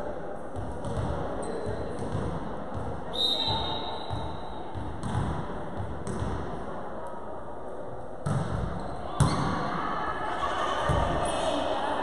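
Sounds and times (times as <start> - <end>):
volleyball struck with echo: 0.6 - 6.6, 8.2 - 9.7.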